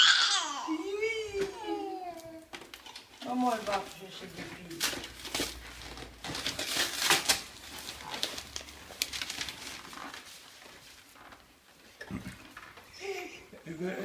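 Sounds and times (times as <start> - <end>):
packing rustling and crinkling: 1.4 - 11.5
cardboard and paper tearing: 3.2 - 10.4.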